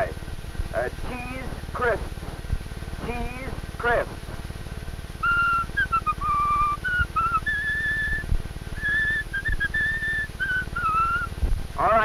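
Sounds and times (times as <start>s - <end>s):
low rumble: 0.0s - 12.0s
man whistling a tune: 5.2s - 11.3s.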